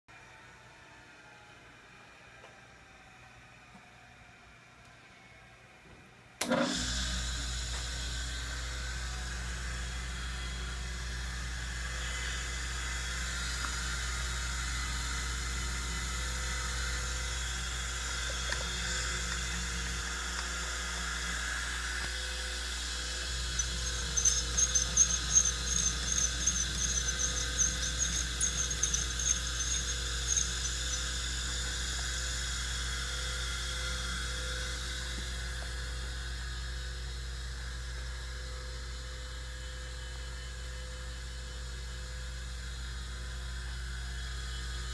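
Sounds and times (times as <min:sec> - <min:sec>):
surface grinder motor hum: 0:07.5 - 0:35.7
rapid high-pitched squeaks: 0:23.3 - 0:31.2.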